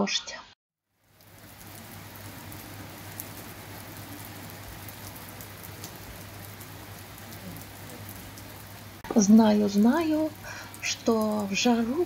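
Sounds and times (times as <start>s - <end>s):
heavy rain on a road: 1.0s - 9.0s, 9.9s - 12.0s
rain drop ticks: 1.0s - 12.0s.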